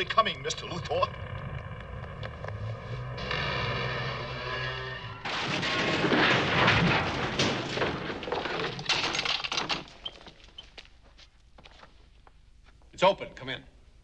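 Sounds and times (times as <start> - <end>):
cracks crashes and impacts: 5.2 - 11.0.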